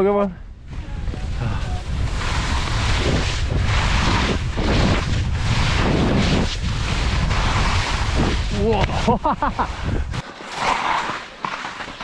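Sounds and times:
wind buffeting microphone: 0.3s - 10.2s
skis swishing through snow: 1.2s - 12.0s.

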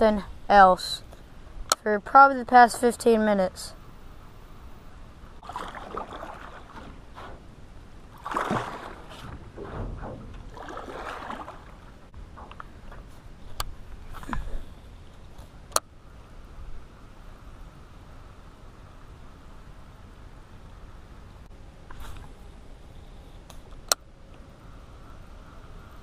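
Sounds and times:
paddle swishing through water: 5.4s - 14.2s.

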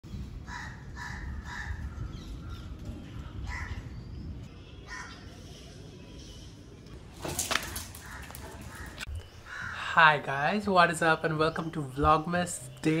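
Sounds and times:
crows cawing: 0.4s - 2.0s, 3.4s - 3.9s, 4.9s - 5.3s, 7.4s - 9.9s.

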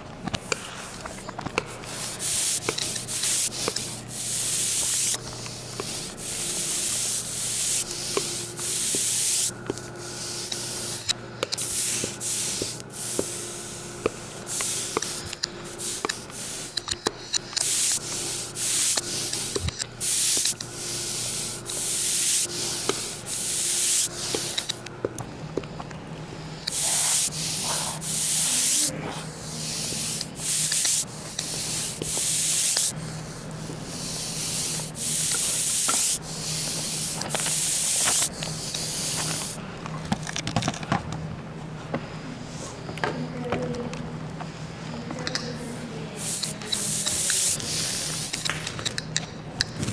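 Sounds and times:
steady low hum: 0.0s - 49.9s
rasping hissing noise: 1.9s - 24.8s, 26.5s - 39.6s, 46.2s - 48.5s.

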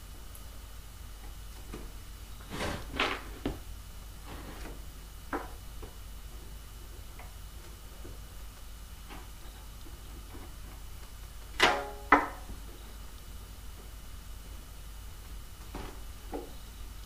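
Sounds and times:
low steady hum: 0.0s - 17.0s
short scrapes: 2.4s - 3.5s.

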